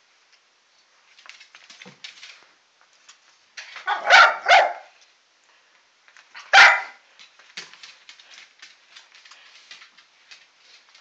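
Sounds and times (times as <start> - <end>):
pet barking: 3.8 - 5.0, 6.4 - 7.0.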